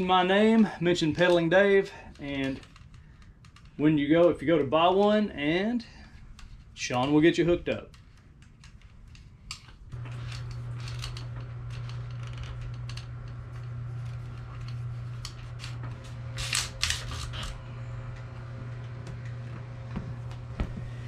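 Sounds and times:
steady low hum: 0.0s - 21.0s
bicycle parts clicking and rustling: 0.4s - 4.7s, 6.0s - 17.6s.

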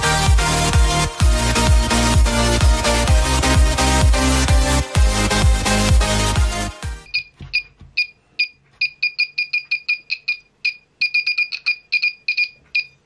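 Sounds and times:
buzzer giving high-pitched beeps: 7.1s - 13.0s.

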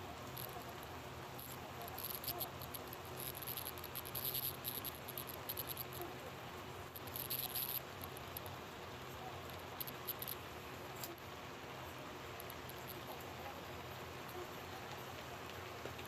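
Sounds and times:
faint high crackling ticks: 0.0s - 16.0s.

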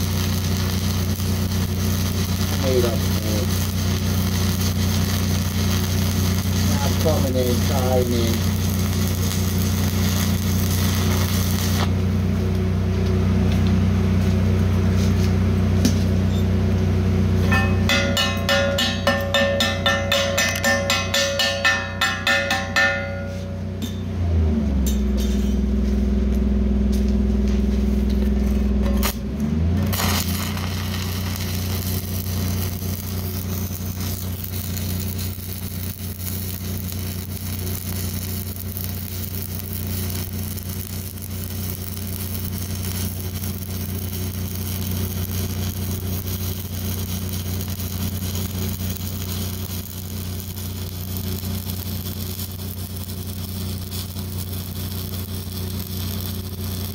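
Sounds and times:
crackling welding arc: 0.0s - 12.6s, 27.9s - 56.9s
low machine hum: 0.0s - 56.9s.

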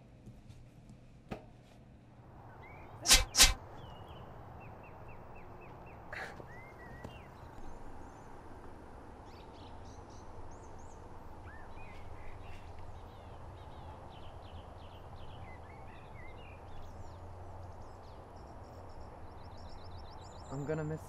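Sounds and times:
birds chirping: 2.4s - 21.0s.

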